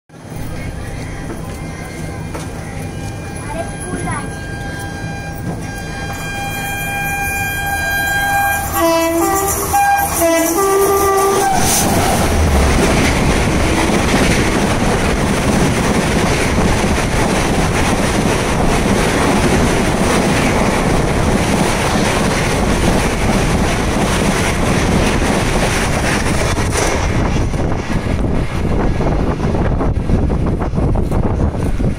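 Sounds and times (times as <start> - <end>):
train wheels rushing on rails: 0.1 - 31.9
train horn honking: 2.8 - 13.0.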